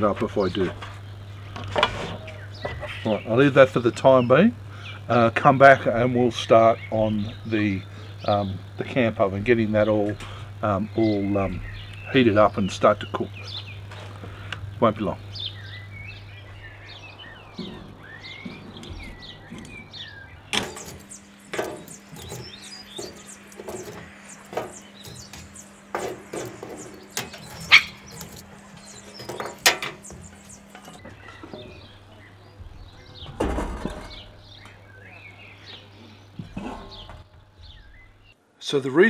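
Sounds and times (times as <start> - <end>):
camp oven clattering down: 0.0 - 38.3
birds chirping: 0.0 - 38.4
charcoal clinking on steel: 20.5 - 32.1.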